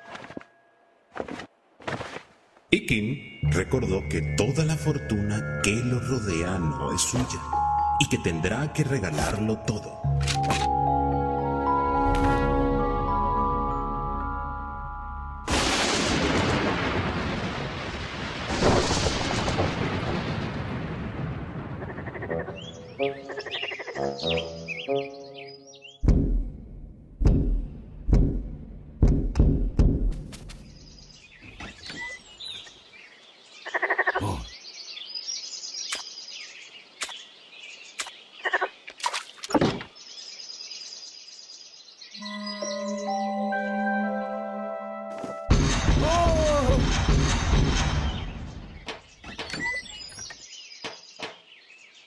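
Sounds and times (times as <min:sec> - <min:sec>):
soft soundtrack music: 0:03.1 - 0:15.5, 0:24.0 - 0:25.8, 0:42.2 - 0:45.5
thunderclap: 0:15.5 - 0:22.3
frog croaking: 0:21.8 - 0:22.6, 0:23.2 - 0:24.2, 0:33.6 - 0:34.5, 0:38.4 - 0:38.8
steady high chirping: 0:42.2 - 0:44.6.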